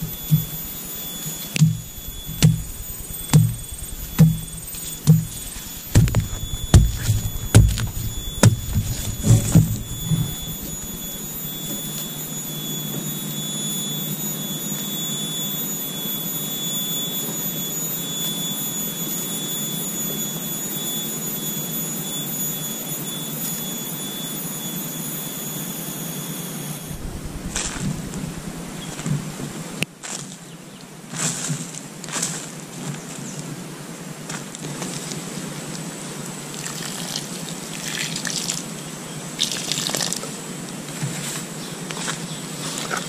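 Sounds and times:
steady hiss: 0:00.0 - 0:13.0
thin high whine: 0:00.0 - 0:29.8
digging strikes into soil: 0:01.6 - 0:10.7.

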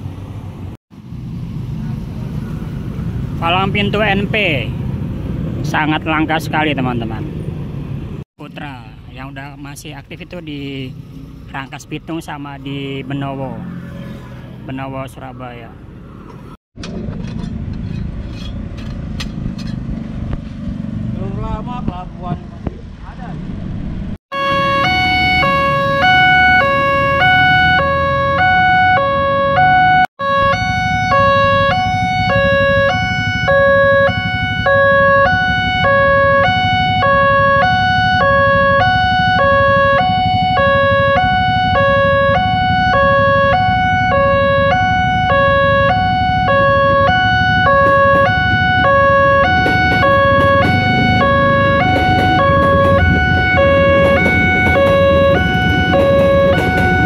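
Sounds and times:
level crossing two-tone alarm: 0:24.3 - 0:57.0
electric train rumbling past: 0:47.3 - 0:57.0.

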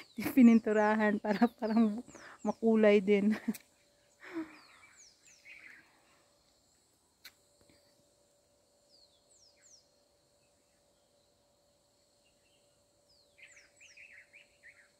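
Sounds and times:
faint bird chirps: 0:00.0 - 0:08.2, 0:08.8 - 0:11.5, 0:12.1 - 0:14.9
faint click: 0:07.2 - 0:07.8.

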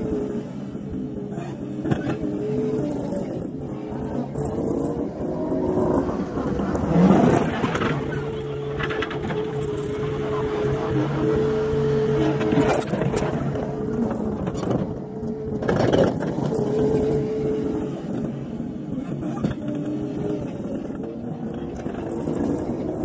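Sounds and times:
skid steer engine whining: 0:00.0 - 0:23.0.

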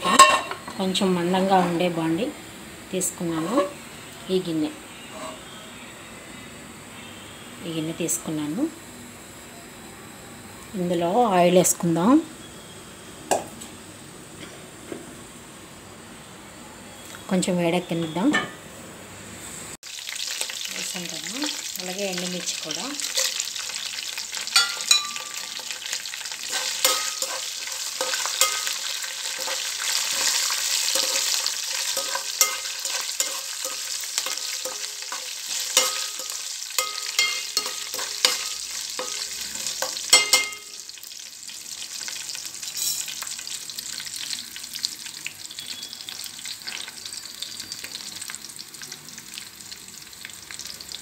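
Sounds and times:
spatula scraping a pan: 0:05.1 - 0:05.5, 0:23.0 - 0:23.6, 0:24.4 - 0:40.4
spices sizzling in hot oil: 0:19.7 - 0:51.0.

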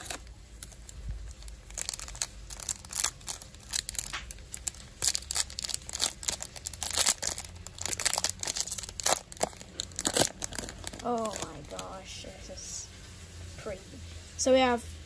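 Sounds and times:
foil card pack crinkling: 0:00.0 - 0:12.3.

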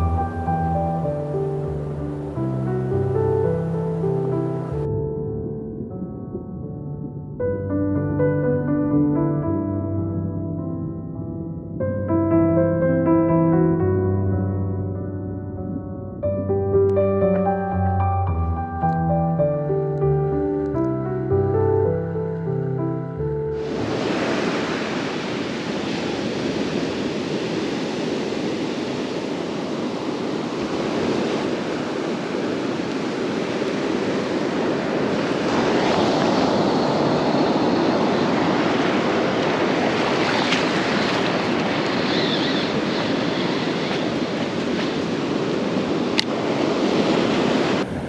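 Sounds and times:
surf washing up beach: 0:00.0 - 0:04.9, 0:23.6 - 0:48.0.

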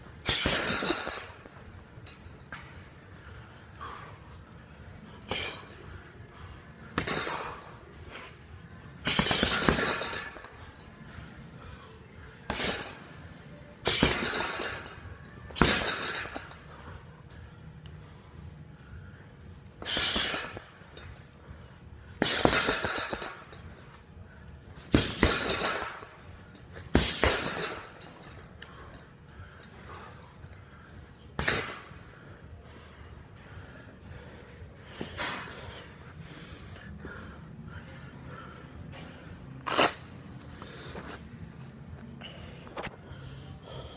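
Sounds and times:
punches on heavy bag: 0:26.9 - 0:27.6.

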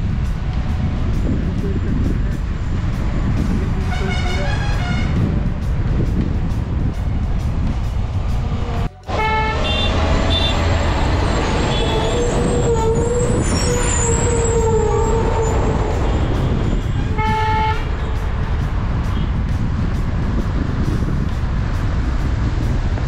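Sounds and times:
vehicle wind and road noise: 0:00.0 - 0:23.0
vehicle horn toots: 0:03.8 - 0:05.3, 0:09.1 - 0:18.2.

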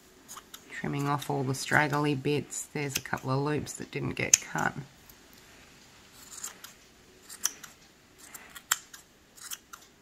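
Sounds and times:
scissors snipping yarn: 0:00.3 - 0:02.1, 0:02.8 - 0:03.3, 0:06.2 - 0:10.0.

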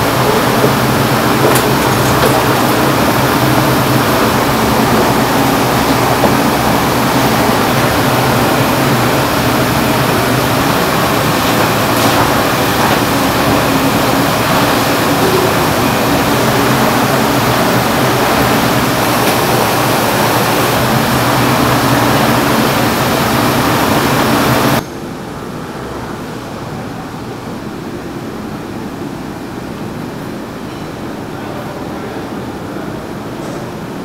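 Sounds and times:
kitchen machine hum and hiss: 0:00.0 - 0:34.0.

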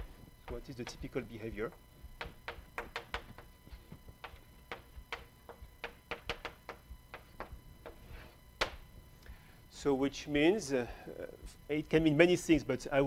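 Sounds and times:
chalk tapping on a blackboard: 0:02.2 - 0:03.5, 0:04.2 - 0:08.0.

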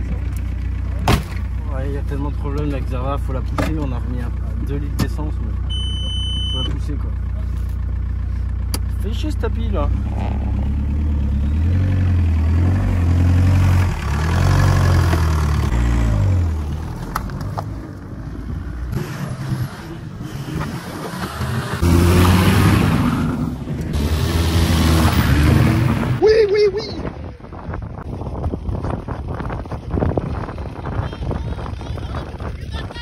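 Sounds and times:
stock-car engines revving: 0:08.3 - 0:26.2.

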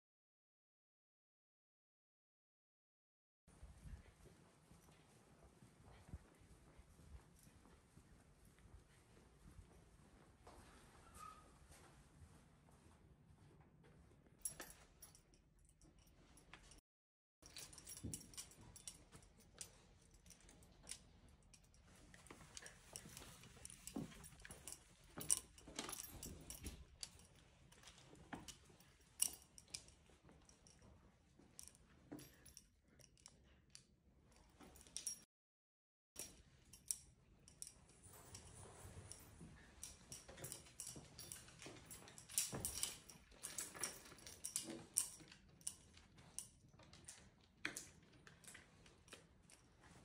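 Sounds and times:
leash and collar hardware rattling: 0:14.4 - 0:16.8, 0:17.4 - 0:35.3, 0:36.2 - 0:50.0.

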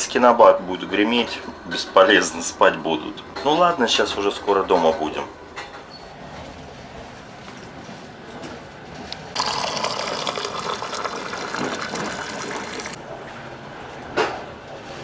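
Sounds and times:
water gushing from tap into glass: 0:09.4 - 0:13.0.

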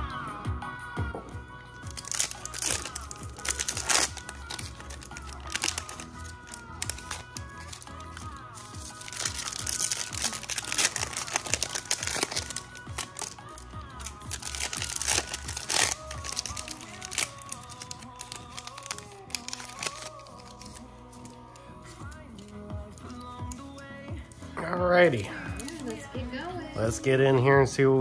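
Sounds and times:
background music: 0:00.0 - 0:28.0
foil wrappers crinkling and tearing: 0:01.9 - 0:23.8.

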